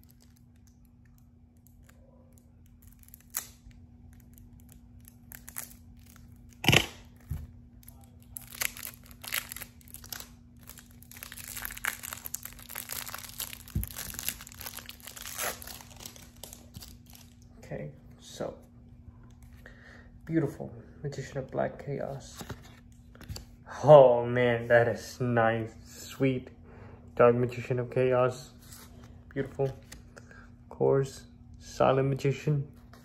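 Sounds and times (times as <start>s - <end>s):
plastic wrapper tearing: 0.0s - 17.4s
plastic wrapping crinkling: 0.0s - 17.4s.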